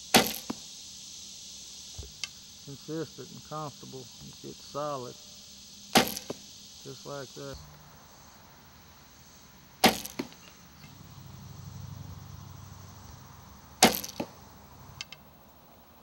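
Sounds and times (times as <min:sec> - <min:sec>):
arrow striking foam target: 0:00.1 - 0:00.6, 0:06.0 - 0:06.4, 0:09.8 - 0:10.4, 0:13.8 - 0:14.3
faint low hum: 0:02.0 - 0:16.0
bow string slap: 0:13.8 - 0:14.4.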